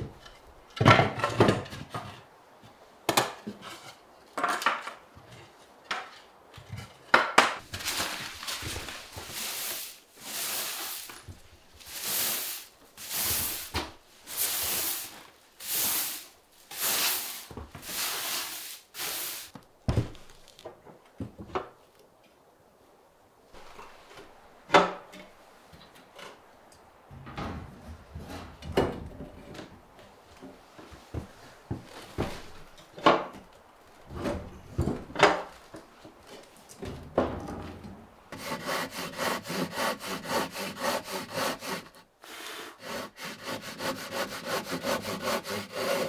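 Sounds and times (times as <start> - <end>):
thuds: 19.8 - 20.4
rasping scraping strokes: 38.4 - 46.0.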